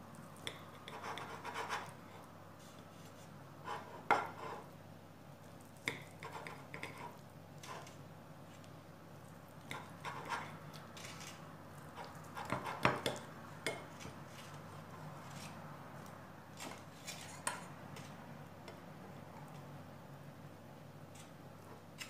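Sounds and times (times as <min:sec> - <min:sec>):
knife scraping a ceramic plate: 0:03.6 - 0:04.7, 0:06.2 - 0:08.0, 0:09.7 - 0:11.4.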